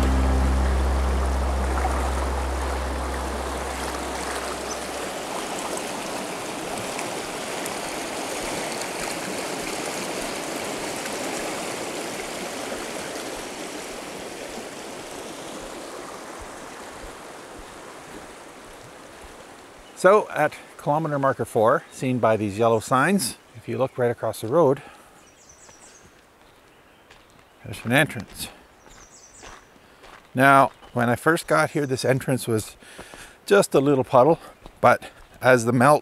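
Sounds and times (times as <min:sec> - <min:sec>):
deep low note: 0:00.0 - 0:05.3
river rushing over rocks: 0:00.0 - 0:19.8.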